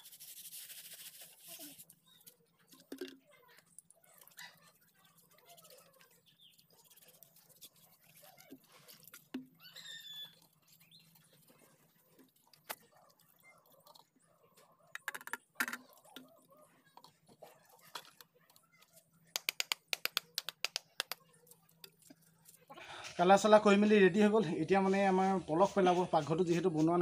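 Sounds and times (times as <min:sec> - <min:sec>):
bird chirping: 0:09.5 - 0:11.5
paintbrush tapping against tin: 0:19.3 - 0:21.2.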